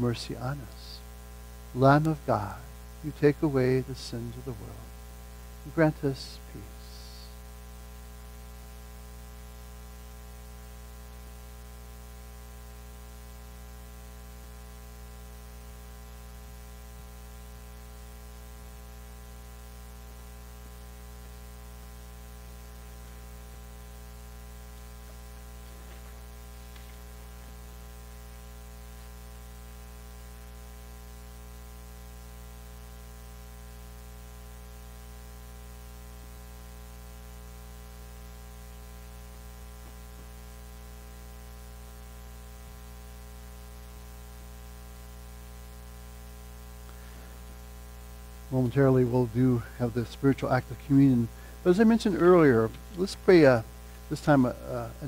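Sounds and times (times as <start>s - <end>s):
faint hiss: 0.0s - 9.7s, 12.1s - 55.0s
electrical mains hum: 0.0s - 55.0s.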